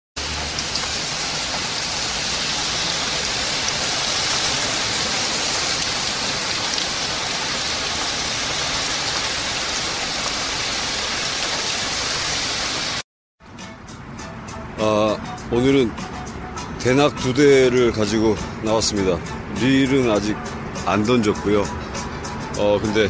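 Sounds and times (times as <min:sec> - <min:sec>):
steady rain: 0:00.2 - 0:13.0.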